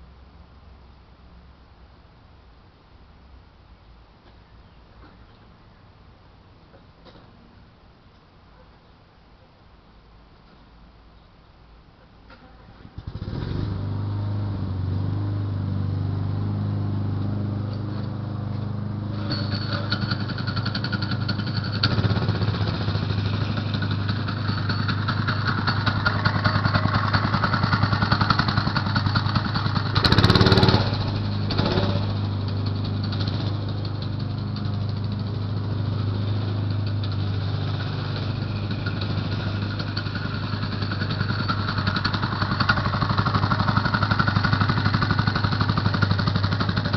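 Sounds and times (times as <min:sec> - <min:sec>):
small engine starting and revving: 0:12.6 - 0:46.9.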